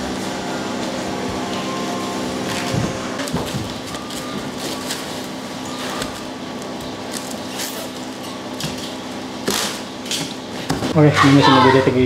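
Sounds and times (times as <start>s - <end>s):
steady hum: 0.0s - 12.0s
plastic and cardboard crinkling: 2.6s - 8.2s.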